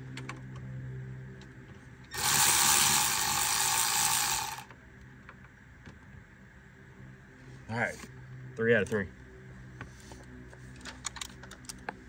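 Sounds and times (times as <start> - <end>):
cordless ratchet running: 2.1 - 4.7.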